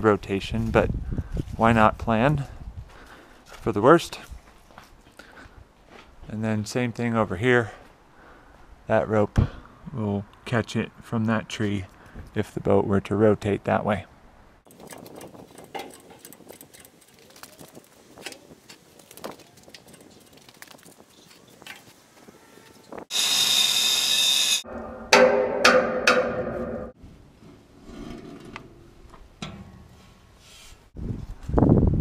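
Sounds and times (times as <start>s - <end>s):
angle grinder on steel: 23.1s - 25.3s.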